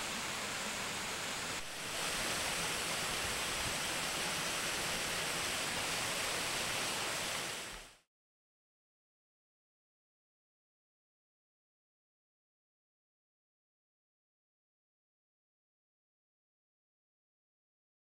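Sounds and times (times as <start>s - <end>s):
creek water rushing over rocks: 0.0s - 8.0s.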